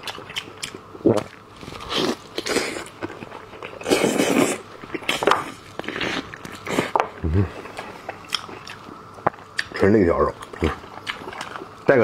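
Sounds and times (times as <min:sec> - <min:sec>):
chewing with wet mouth noises: 0:00.0 - 0:11.8.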